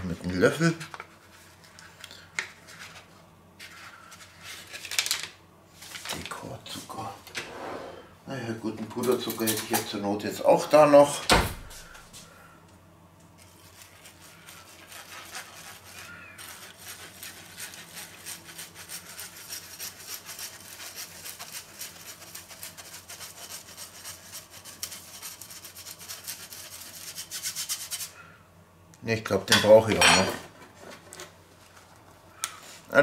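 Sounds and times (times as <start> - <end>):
spoon scraping sugar through sieve: 13.4 - 28.1.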